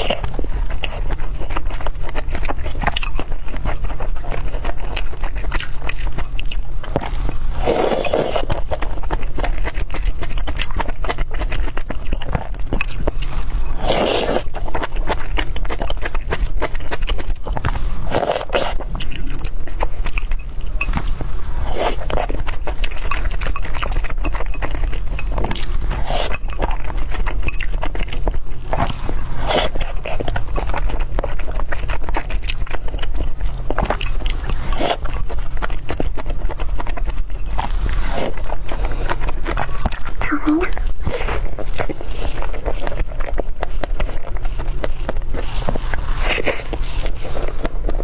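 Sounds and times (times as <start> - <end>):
chewing and mouth smacks: 0.0 - 48.0.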